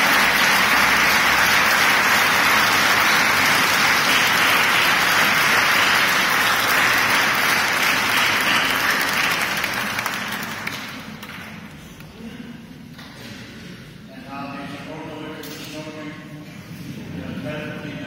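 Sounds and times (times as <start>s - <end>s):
crowd applauding: 0.0s - 11.7s.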